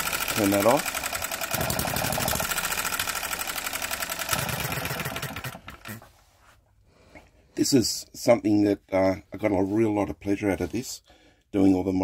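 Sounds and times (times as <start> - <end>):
model petrol engine running: 0.0 - 6.0.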